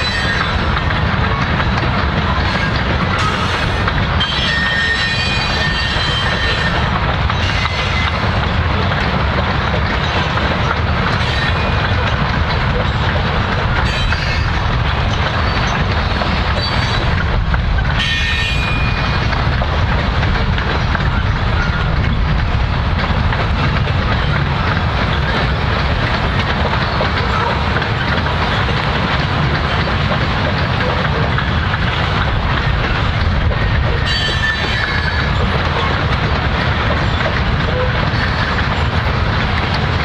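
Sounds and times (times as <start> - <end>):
freight cars rolling rumble: 0.0 - 40.0
wheels clacking over rail joints: 0.0 - 40.0
high-pitched wheel squeals: 2.6 - 6.8, 34.0 - 35.3.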